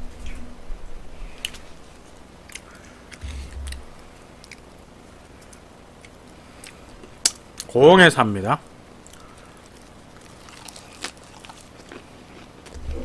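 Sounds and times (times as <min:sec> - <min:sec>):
chewing close to microphone: 0:09.0 - 0:13.0.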